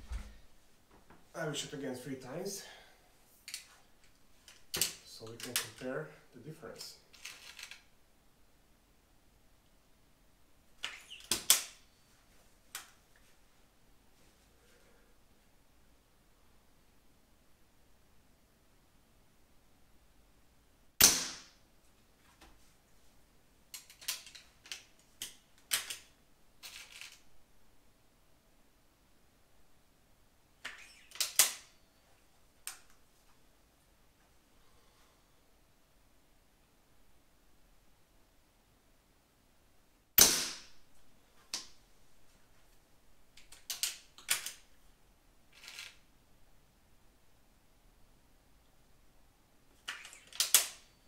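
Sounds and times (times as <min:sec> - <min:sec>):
air rifle shot: 0:21.0 - 0:21.6, 0:40.2 - 0:40.7.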